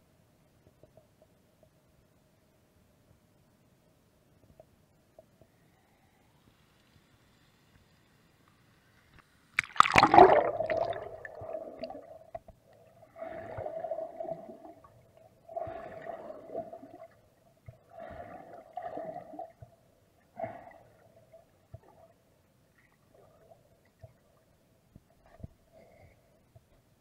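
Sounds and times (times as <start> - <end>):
muffled underwater water surges: 4.2 - 27.0
faint ticks: 4.4 - 9.4
steady underwater tone: 9.6 - 27.0.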